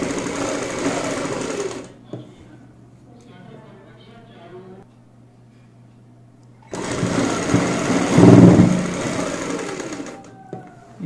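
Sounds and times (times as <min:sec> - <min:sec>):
sewing machine stitching: 0:00.0 - 0:01.9, 0:06.7 - 0:10.3.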